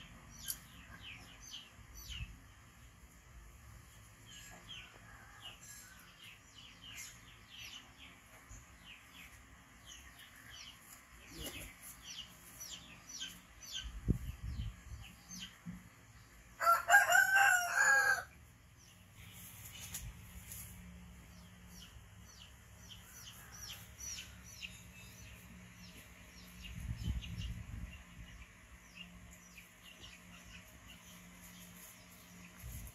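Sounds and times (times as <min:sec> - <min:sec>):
small birds chirping: 0:00.0 - 0:03.1, 0:06.0 - 0:16.4, 0:18.4 - 0:32.9
rooster crowing: 0:16.6 - 0:18.3.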